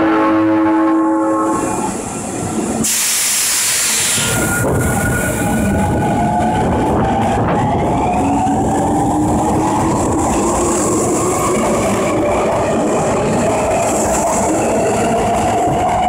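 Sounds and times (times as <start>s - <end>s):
subway train horn: 0.0s - 8.2s
train running past with motor whine: 0.0s - 16.0s
air hiss: 2.8s - 4.5s.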